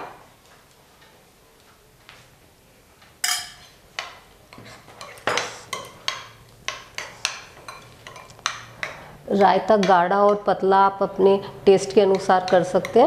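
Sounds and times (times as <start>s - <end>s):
spoon clinking against glass bowl: 3.2s - 3.7s.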